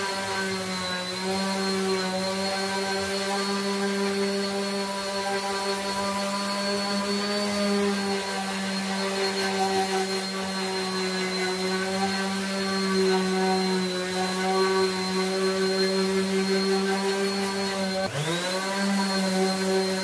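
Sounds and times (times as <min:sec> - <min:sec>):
orbital sander motor hum: 0:00.0 - 0:20.0.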